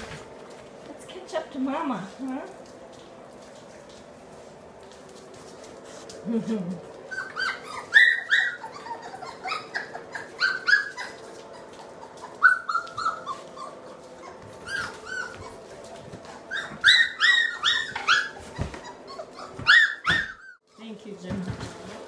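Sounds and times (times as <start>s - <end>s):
puppies whimpering and squealing: 6.8s - 20.8s.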